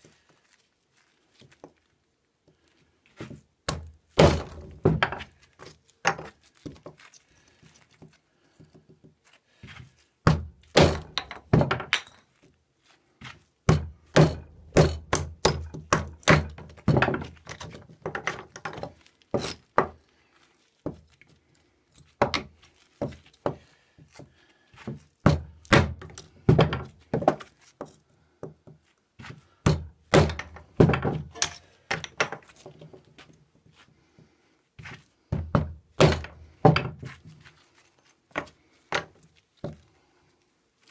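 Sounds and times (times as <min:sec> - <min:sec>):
knife batoning into wood knocks: 0:03.7 - 0:05.3, 0:10.3 - 0:12.2, 0:13.7 - 0:20.0, 0:24.8 - 0:27.5, 0:29.6 - 0:32.6, 0:35.4 - 0:37.2.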